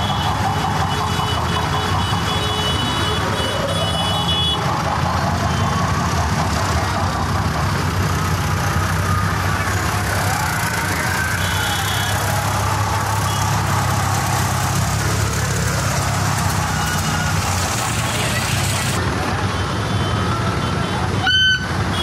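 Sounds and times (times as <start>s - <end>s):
crowd voices: 0.0s - 21.9s
diesel tractor engine running: 0.0s - 22.0s.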